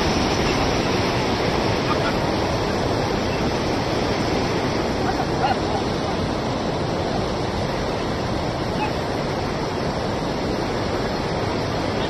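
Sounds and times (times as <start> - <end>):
river in flood roaring: 0.0 - 12.0.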